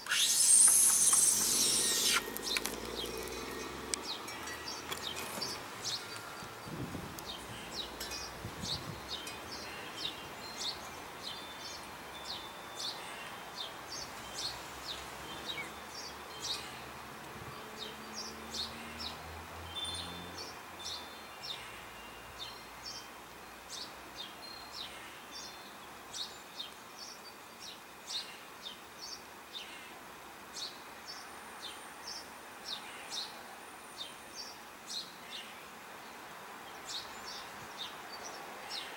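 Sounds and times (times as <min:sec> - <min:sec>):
thin high whistle: 0:00.0 - 0:02.6
outdoor hiss: 0:00.0 - 0:38.9
songbirds chirping: 0:00.0 - 0:38.9.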